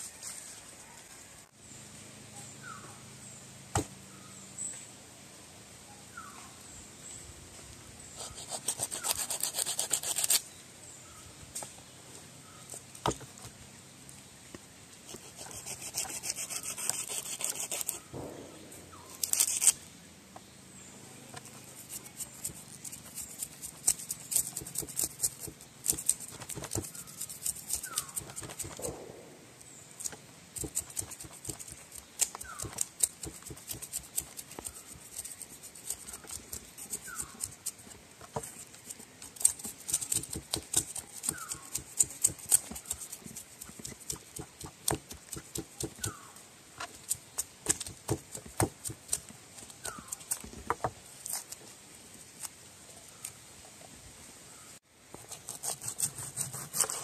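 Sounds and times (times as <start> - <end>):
knife scraping fish skin: 8.2 - 10.4, 21.8 - 28.9, 55.2 - 57.0.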